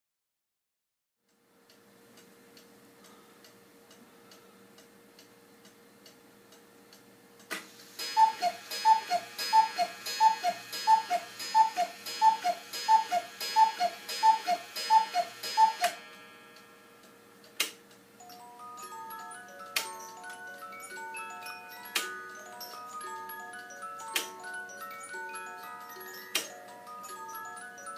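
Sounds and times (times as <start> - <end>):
cuckoo clock ticking: 1.7 - 27.9
clock mechanism click: 4.8 - 16.7
music box playing: 7.9 - 17.5, 18.2 - 27.9
cuckoo calls: 8.0 - 16.0.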